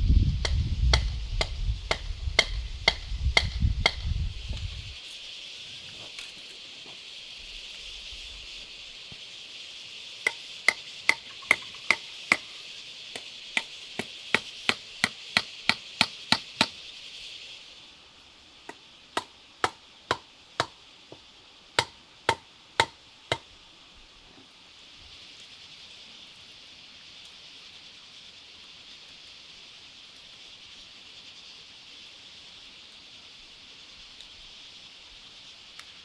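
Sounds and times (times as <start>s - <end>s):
steady high hiss: 0.0s - 36.0s
hand tool striking wood: 0.4s - 4.1s, 10.2s - 12.4s, 13.1s - 16.8s, 18.7s - 21.2s, 21.8s - 23.4s.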